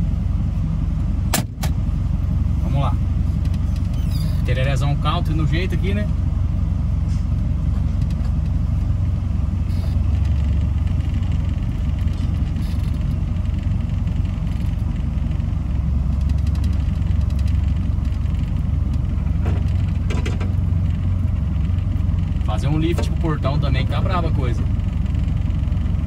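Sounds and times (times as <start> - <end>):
diesel truck engine rumbling: 0.0 - 26.0.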